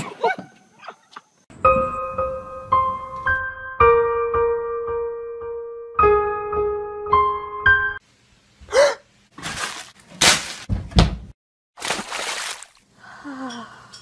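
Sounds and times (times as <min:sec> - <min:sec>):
piano notes ringing: 0:01.5 - 0:08.0
candy scattering on tile floor: 0:09.4 - 0:10.7.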